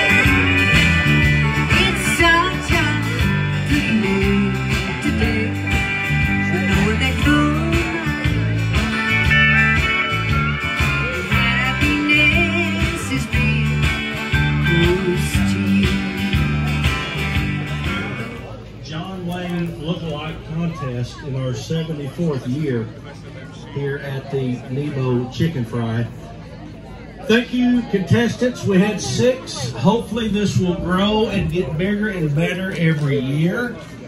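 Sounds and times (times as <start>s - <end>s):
country music with guitar and singing: 0.0s - 18.5s.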